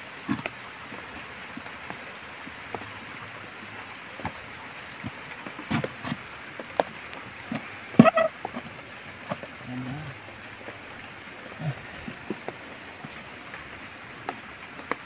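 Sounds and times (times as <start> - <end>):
steady hiss: 0.0 - 15.0
hands scraping soil: 5.6 - 6.3.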